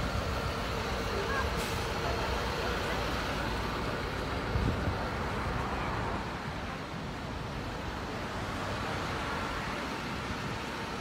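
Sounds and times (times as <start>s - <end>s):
rumble of vehicles: 0.0s - 11.0s
wind buffeting microphone: 3.9s - 5.6s.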